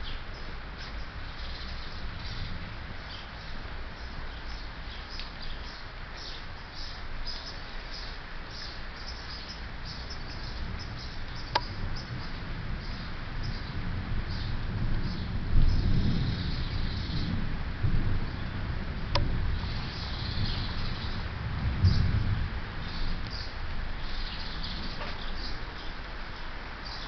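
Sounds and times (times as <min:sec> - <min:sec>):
small birds chirping: 0:00.0 - 0:17.4, 0:19.1 - 0:27.0
steady rain: 0:00.0 - 0:27.0.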